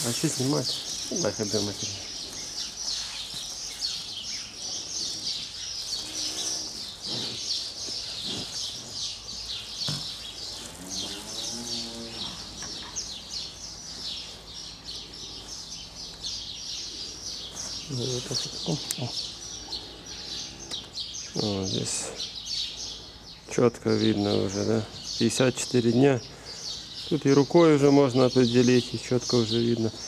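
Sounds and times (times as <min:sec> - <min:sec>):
small birds chirping: 0:00.0 - 0:30.0
cattle mooing: 0:06.0 - 0:07.5, 0:10.4 - 0:12.8, 0:19.3 - 0:20.9.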